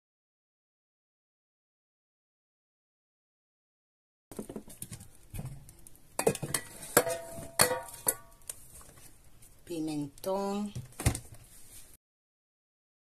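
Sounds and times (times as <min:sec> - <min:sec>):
groceries knocking on counter: 0:04.3 - 0:05.6.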